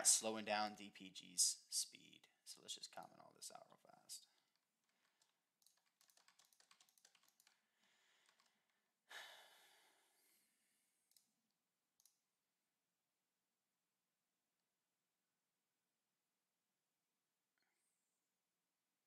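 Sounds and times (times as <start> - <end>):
keyboard typing: 4.4 - 7.6, 8.2 - 8.6
soft breathy noise: 7.6 - 11.0.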